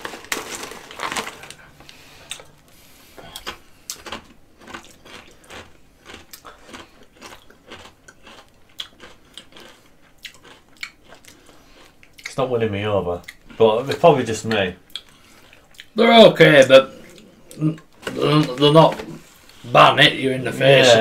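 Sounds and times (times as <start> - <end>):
crisp packet rustling: 0.0 - 2.5
crisps being crunched: 0.0 - 2.6, 3.3 - 11.9.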